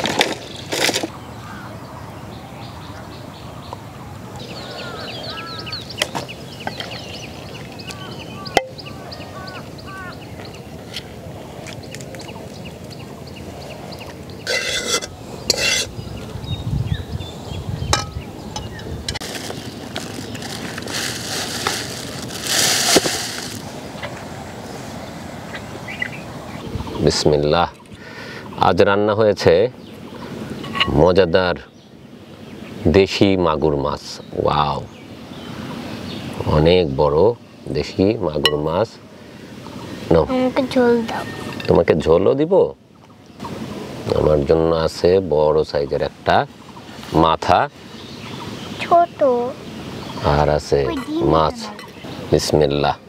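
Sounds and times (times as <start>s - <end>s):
leaves rustling: 0.0s - 2.0s, 4.2s - 42.1s, 43.2s - 53.0s
birds chirping: 0.0s - 53.0s.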